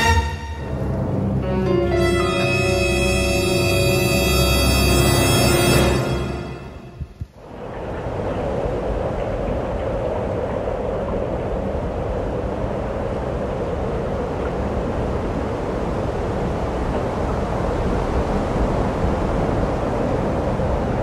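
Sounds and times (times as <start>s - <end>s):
wind noise on microphone: 6.7s - 21.0s.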